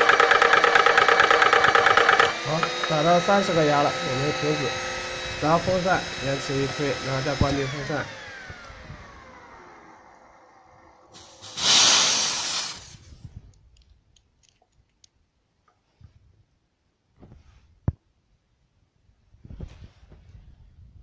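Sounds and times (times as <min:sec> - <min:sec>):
compressor motor spinning down: 0:00.0 - 0:13.0
compressed air hissing: 0:11.1 - 0:13.2.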